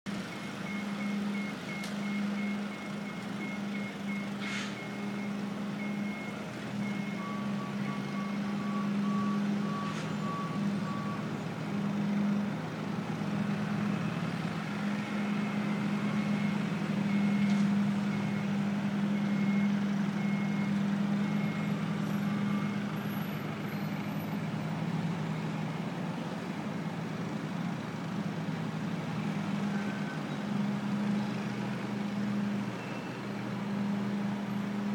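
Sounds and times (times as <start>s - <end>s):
high backup alarm beeps: 0.3s - 11.2s
lower-pitched backup beeper: 0.3s - 11.3s.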